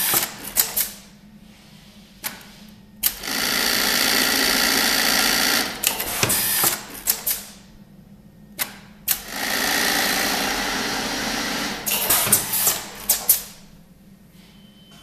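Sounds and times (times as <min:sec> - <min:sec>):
sewing machine stitching: 0:09.2 - 0:13.3.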